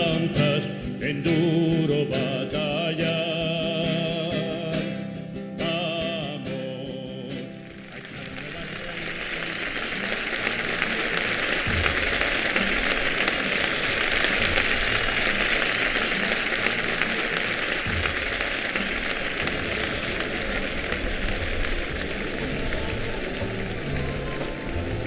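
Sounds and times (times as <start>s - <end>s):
crowd applauding: 7.3s - 25.0s.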